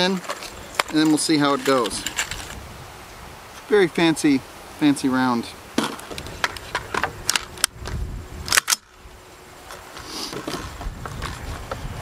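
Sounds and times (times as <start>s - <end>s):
magazine metallic clicks: 8.5s - 8.9s.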